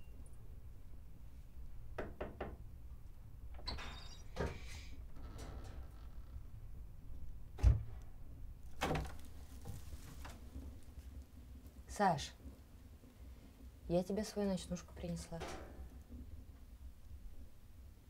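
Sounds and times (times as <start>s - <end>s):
wooden door knock: 2.0s - 2.6s.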